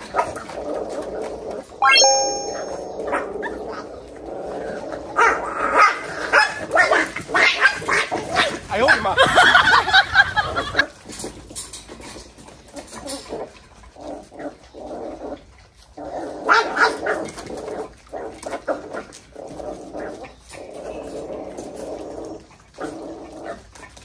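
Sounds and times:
puppies whining and yelping: 0:00.4 - 0:04.2.

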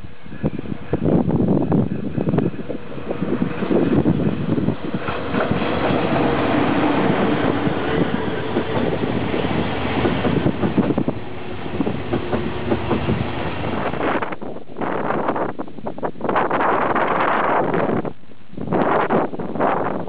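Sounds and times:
train running gear rumble: 0:00.0 - 0:20.0
train wheels clattering over rail joints: 0:04.8 - 0:14.4.

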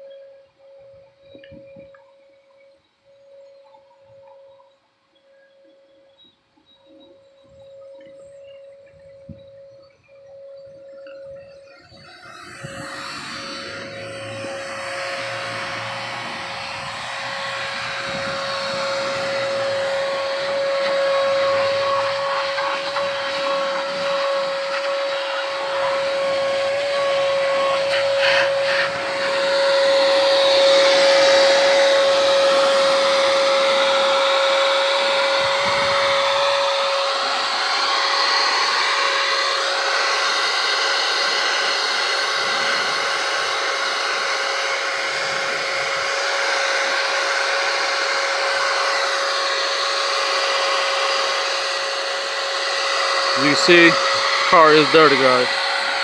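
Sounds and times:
vacuum cleaner motor whine: 0:00.0 - 0:56.0
rushing hiss of air: 0:12.0 - 0:54.5.

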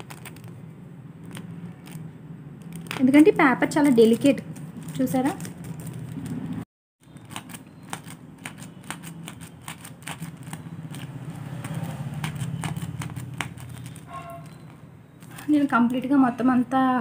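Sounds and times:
needle pricking through paper: 0:07.2 - 0:15.6.

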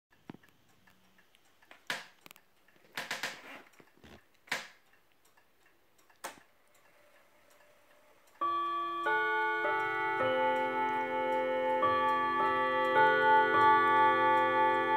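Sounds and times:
clock clicks: 0:00.1 - 0:14.9
clock ticking: 0:00.1 - 0:14.9
clock chime rods ringing: 0:06.8 - 0:14.9.

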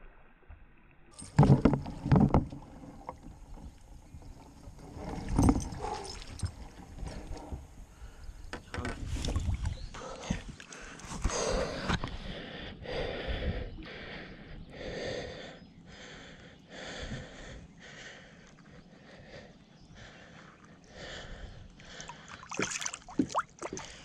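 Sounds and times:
man breathing hard: 0:09.9 - 0:22.5.

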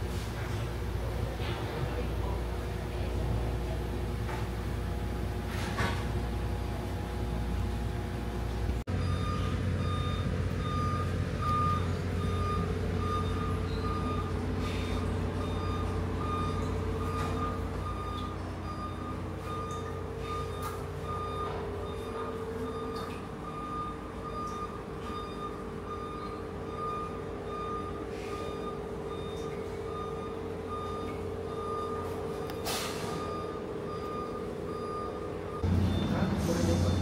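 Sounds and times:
ferry engines droning: 0:00.0 - 0:37.0
electronic beep: 0:33.2 - 0:37.0.

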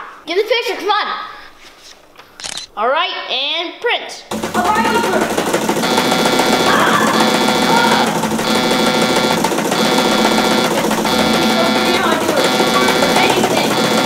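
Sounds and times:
electronic alarm buzzing in pulses: 0:04.3 - 0:14.0.

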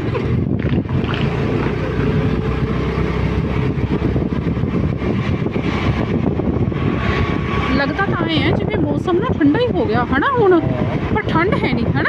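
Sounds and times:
road noise: 0:00.0 - 0:12.0
scooter engine hum: 0:00.0 - 0:12.0
wind rush: 0:00.0 - 0:12.0.

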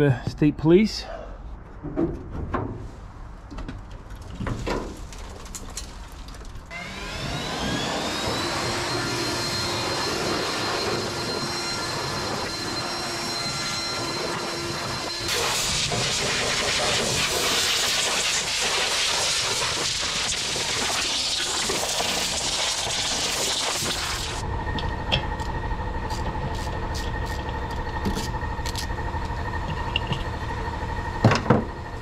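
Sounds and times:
machine motor hum and whine: 0:06.7 - 0:32.0
rushing hiss of air or spray: 0:15.3 - 0:24.4.

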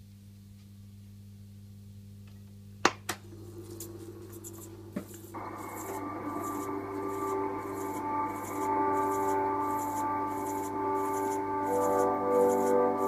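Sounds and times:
tape recorder mains hum: 0:00.0 - 0:13.0
tape recorder running sound: 0:03.0 - 0:13.0.

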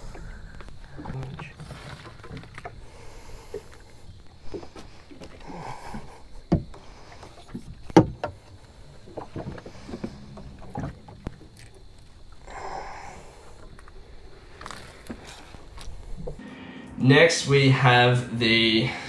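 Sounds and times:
knocks and bumps on boat hull: 0:06.5 - 0:06.8, 0:07.5 - 0:08.4
soft rustles: 0:13.5 - 0:16.4.

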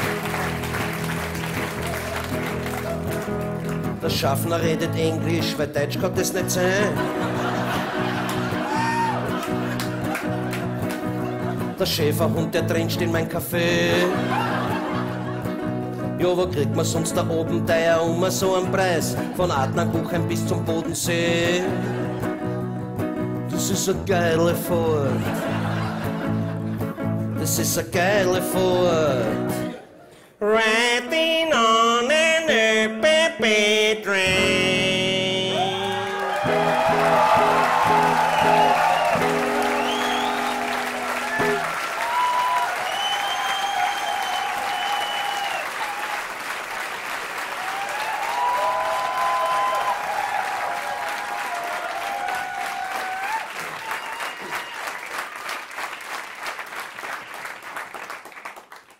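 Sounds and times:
audience applause: 0:00.0 - 0:04.2, 0:06.8 - 0:11.8, 0:14.0 - 0:15.6, 0:35.6 - 0:58.9
acoustic guitar: 0:00.0 - 0:42.6
man singing: 0:04.0 - 0:07.4, 0:11.6 - 0:14.8, 0:16.0 - 0:22.5, 0:23.5 - 0:25.6, 0:27.3 - 0:29.8, 0:30.4 - 0:36.7
crowd calling out: 0:07.0 - 0:11.8, 0:35.5 - 0:46.3, 0:47.5 - 0:54.9.

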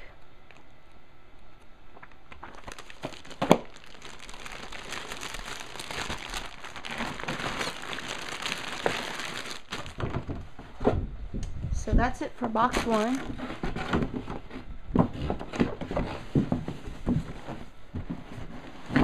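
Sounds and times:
plastic bags crinkling: 0:02.0 - 0:10.4, 0:12.7 - 0:13.4.

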